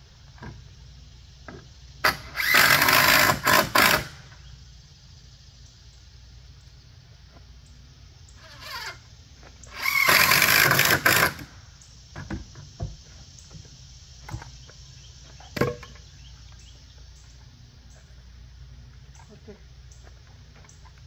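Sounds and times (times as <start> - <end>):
cordless drill driving screw: 2.0 - 4.2, 9.7 - 11.5.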